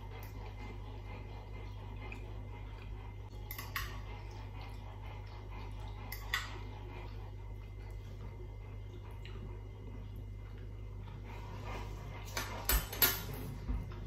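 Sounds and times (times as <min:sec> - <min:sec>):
steady low hum: 0:00.0 - 0:14.0
cutlery clinking on ceramic dish: 0:03.5 - 0:03.9.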